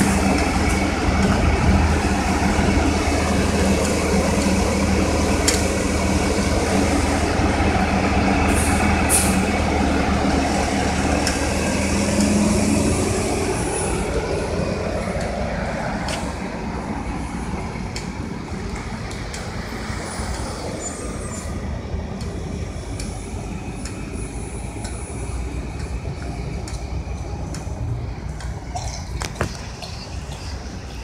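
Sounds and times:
bus engine pulling away: 0.0s - 31.0s.

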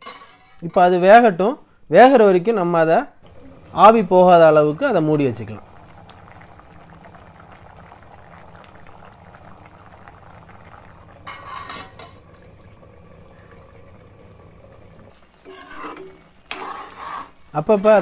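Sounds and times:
steel lid clattering: 0.0s - 0.7s, 11.3s - 12.2s
metal spoon scraping a pan: 0.0s - 0.8s, 11.3s - 12.2s, 15.1s - 18.0s
liquid bubbling in a pan: 3.2s - 18.0s.

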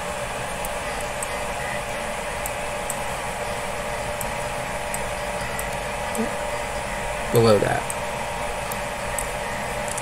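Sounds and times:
fan-like hum and hiss: 0.0s - 10.0s.

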